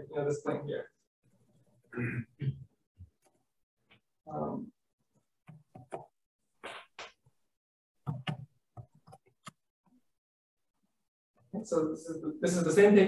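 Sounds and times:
stylus tapping on tablet screen: 5.4s - 6.2s, 8.0s - 10.0s.

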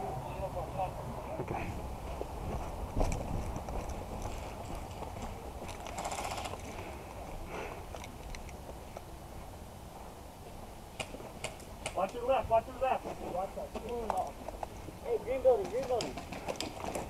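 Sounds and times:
footsteps on dirt: 1.3s - 17.0s
wind rumble on microphone: 1.6s - 5.2s
gear rustling: 2.5s - 9.1s.

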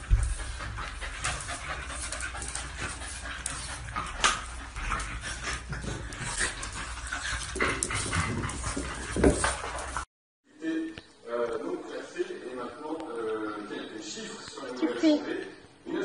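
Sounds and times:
dogs scuffling on tile floor: 0.0s - 10.0s.

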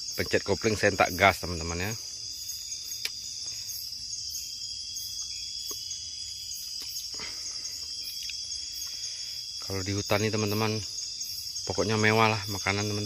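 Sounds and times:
night insects trilling: 0.0s - 13.0s.

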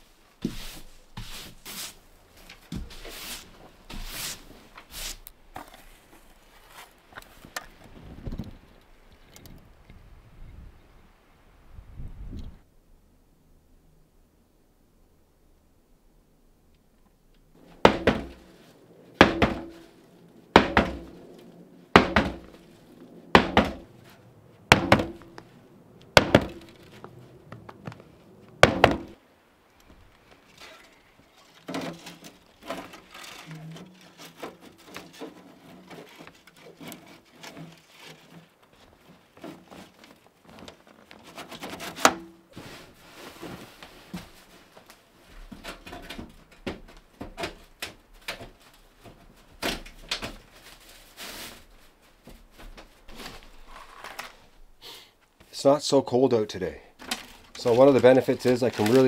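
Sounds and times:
knocks of wood being handled: 17.7s - 21.3s, 21.9s - 22.6s, 23.3s - 29.2s, 43.4s - 50.6s
axe chopping wood: 17.8s - 18.4s, 19.2s - 19.8s, 20.6s - 21.1s, 22.0s - 22.5s, 23.4s - 23.9s, 24.7s - 25.3s, 26.2s - 26.8s, 28.6s - 29.2s.

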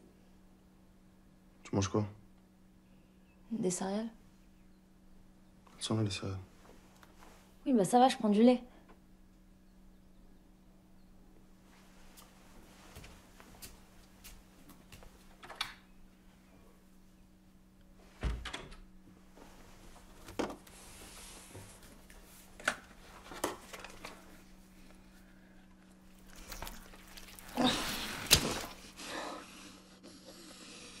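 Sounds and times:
refrigerator humming: 13.2s - 31.0s
things rustling in fridge: 25.8s - 29.0s
plastic packaging rustling: 25.9s - 28.9s.

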